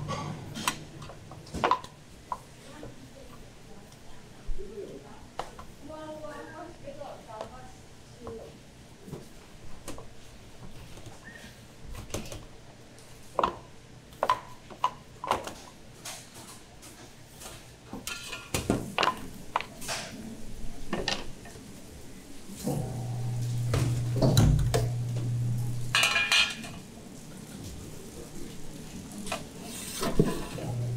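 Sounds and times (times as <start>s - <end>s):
low steady hum: 22.1s - 29.4s, 30.0s - 30.9s
wooden spatula scraping a metal tray: 29.3s - 30.9s.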